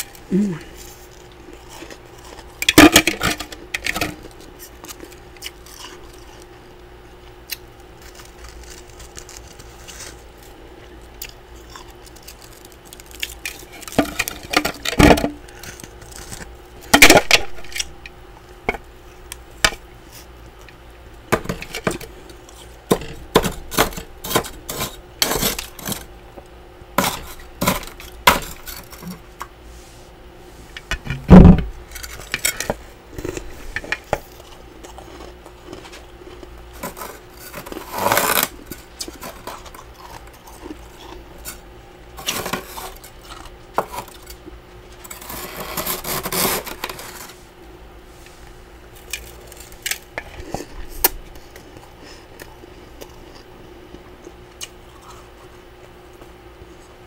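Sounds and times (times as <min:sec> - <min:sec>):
spatula scraping frost: 0:36.8 - 0:39.6, 0:45.0 - 0:47.4.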